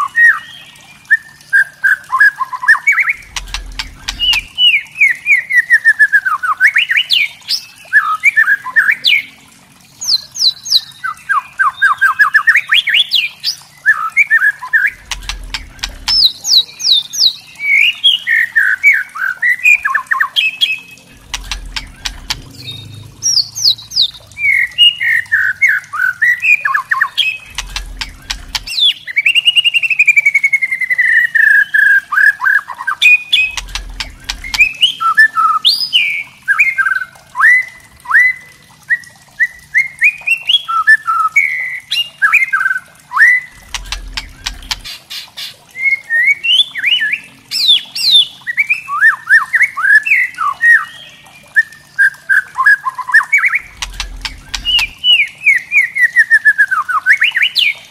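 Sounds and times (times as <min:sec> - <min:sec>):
sharp bird clicking notes: 0:03.2 - 0:04.7, 0:15.0 - 0:16.4, 0:21.1 - 0:23.4, 0:27.4 - 0:28.8, 0:33.4 - 0:34.8, 0:43.5 - 0:45.1, 0:53.6 - 0:55.2.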